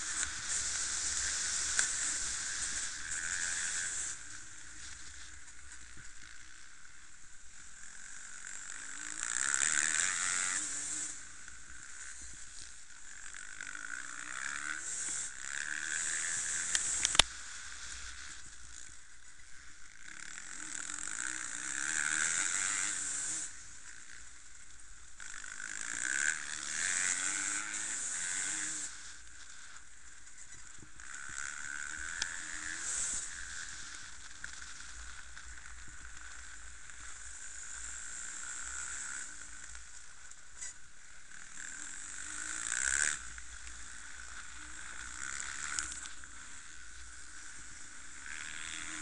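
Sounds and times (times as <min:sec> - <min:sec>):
dirt bike engines revving: 0:00.0 - 0:49.0.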